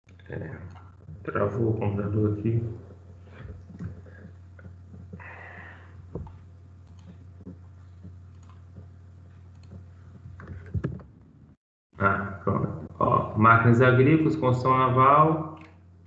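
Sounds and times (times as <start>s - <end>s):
steady low hum: 0.1s - 16.0s
computer mouse clicks: 6.2s - 7.2s, 7.9s - 8.8s, 9.4s - 9.8s.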